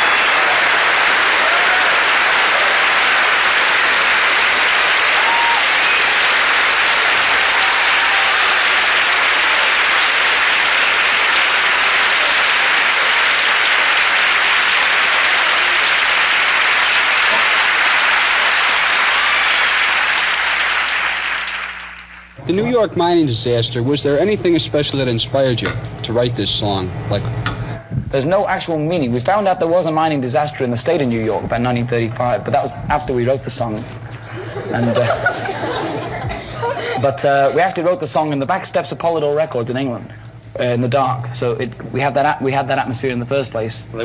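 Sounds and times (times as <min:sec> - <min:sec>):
cheers and whistles: 0:00.0 - 0:10.2, 0:17.2 - 0:19.7
audience applauding: 0:00.0 - 0:22.4.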